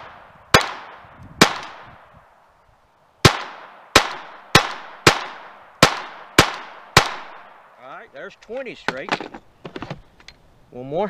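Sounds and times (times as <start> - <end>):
pistol shots with echo: 0.0 - 2.0, 3.2 - 7.7.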